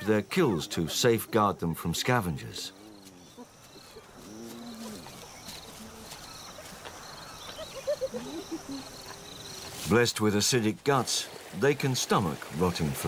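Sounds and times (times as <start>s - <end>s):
hyena moaning and calling: 2.7s - 6.1s.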